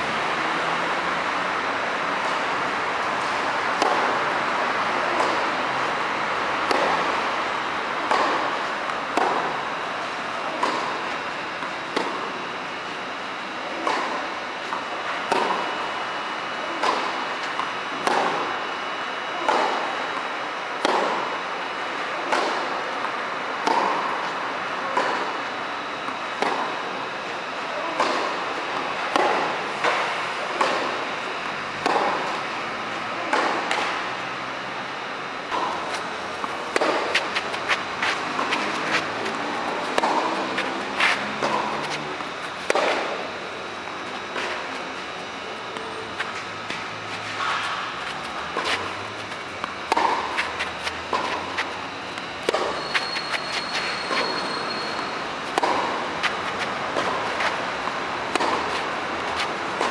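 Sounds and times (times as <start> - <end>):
tennis ball struck by rackets: 3.7 - 4.1, 8.0 - 9.5, 10.5 - 11.0, 15.3 - 15.7, 20.8 - 21.1, 27.9 - 28.3, 31.8 - 32.4, 35.5 - 51.7, 52.4 - 54.4, 55.0 - 59.9.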